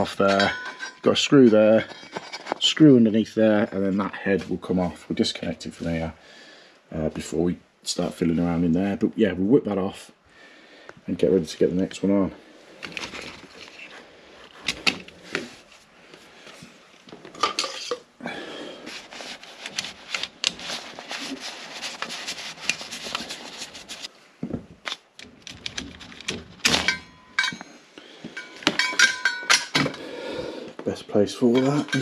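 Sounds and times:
ringing metallic clinks: 26.9 - 27.8, 28.4 - 29.8
screwdriver and metal parts clicking: 28.4 - 30.0.

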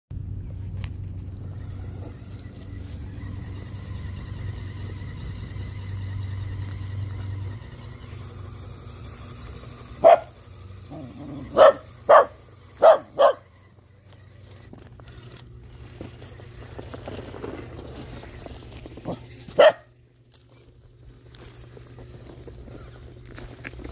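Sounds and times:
electric motor humming: 0.5 - 23.9
dog barking: 10.0 - 10.4, 11.4 - 13.4, 19.6 - 19.9.

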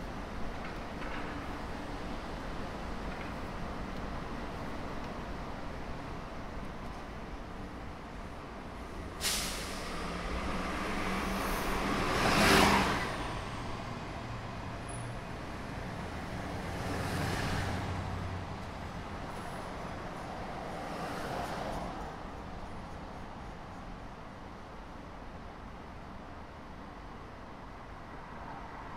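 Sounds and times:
vehicles passing by: 0.0 - 23.1
sudden hiss: 9.2 - 10.1.

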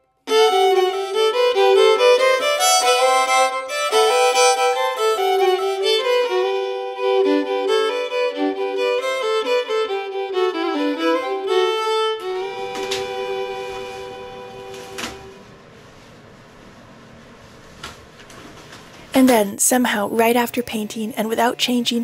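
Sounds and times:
two violins playing in harmony: 0.3 - 15.4.

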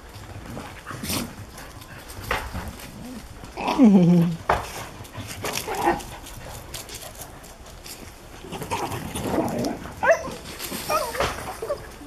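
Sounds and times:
dog whining and yelping: 10.0 - 12.0.

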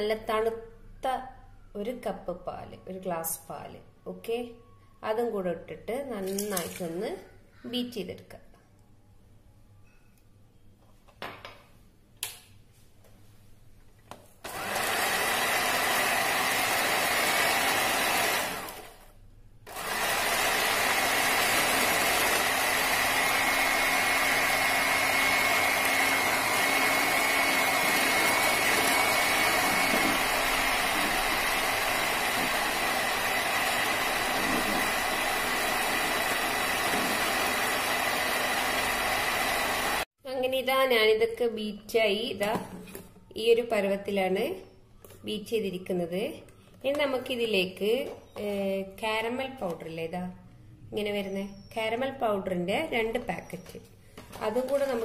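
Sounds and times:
electric hand mixer whining: 14.5 - 19.1, 19.7 - 40.1.

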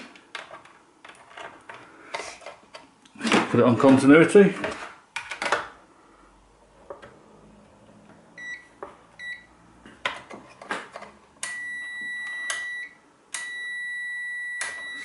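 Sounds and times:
multimeter continuity beeping: 11.4 - 15.0.

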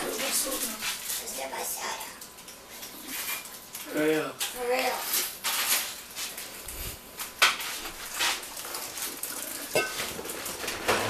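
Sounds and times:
dishes and cutlery clattering: 9.4 - 11.0.

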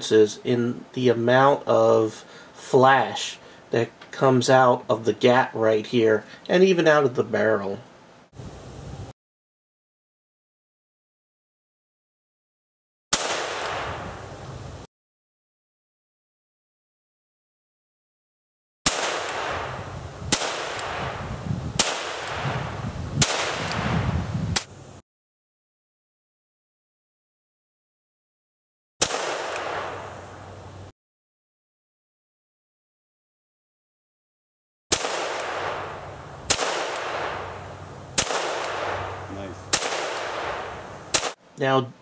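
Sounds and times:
revolver shots with echo: 34.9 - 37.6, 38.2 - 41.4.

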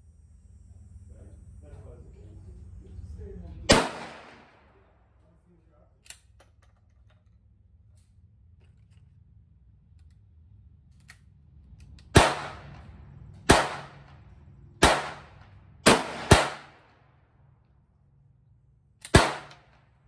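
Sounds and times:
echoing gunshots: 3.7 - 4.8, 12.1 - 17.2, 19.1 - 19.9.

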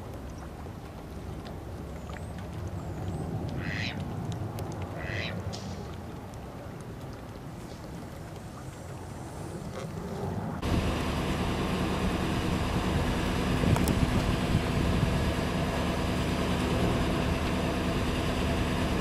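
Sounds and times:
truck engine idling: 10.6 - 19.0.

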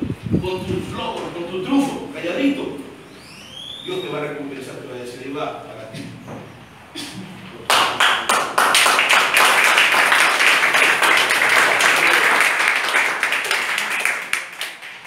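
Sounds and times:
crowd applause: 7.7 - 15.0.

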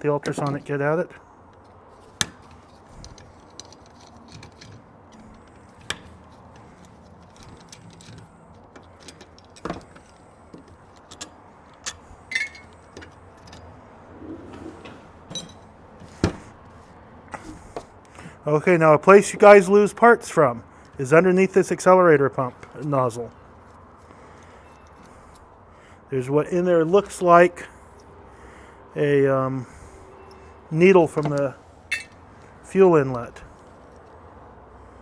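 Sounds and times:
small metal parts clinking: 2.4 - 13.8, 15.3 - 15.7, 23.6 - 25.5, 31.2 - 32.2.

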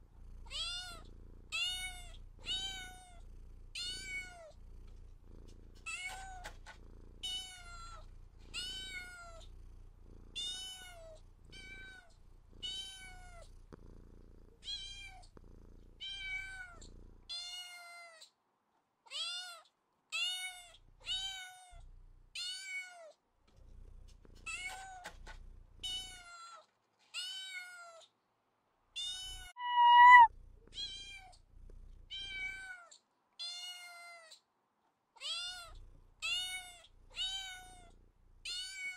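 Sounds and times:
cat meowing: 29.6 - 30.3.

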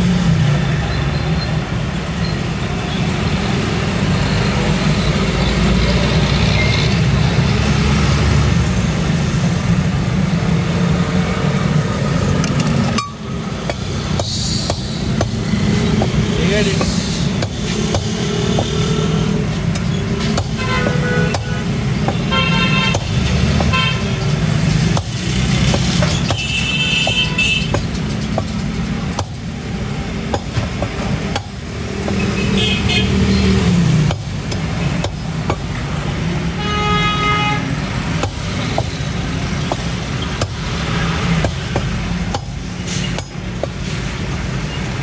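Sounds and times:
traffic noise: 0.0 - 45.0
meat cleaver chopping bone: 13.6 - 19.0, 20.2 - 22.3, 24.9 - 28.5, 29.1 - 29.6, 30.2 - 32.3, 38.2 - 39.0, 39.6 - 40.8
car horns honking: 20.2 - 24.4, 26.0 - 28.0, 32.1 - 33.6, 36.4 - 38.9.

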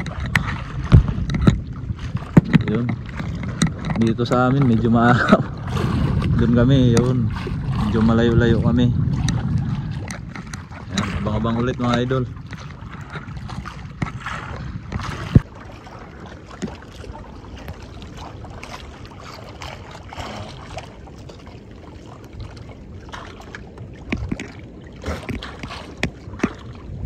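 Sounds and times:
sharp knocks on canoe: 0.0 - 8.1
water lapping against hull: 0.0 - 27.0
water splashes: 0.0 - 27.0.

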